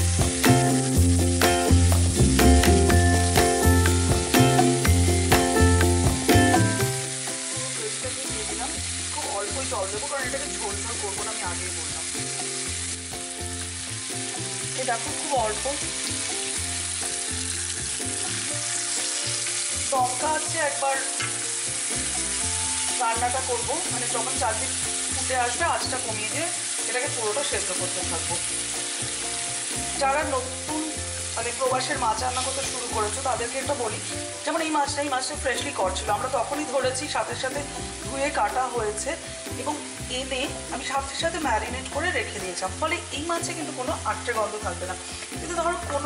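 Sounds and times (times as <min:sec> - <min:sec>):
music with a steady beat: 0:00.0 - 0:07.7
fish sizzling in hot oil: 0:00.0 - 0:46.0.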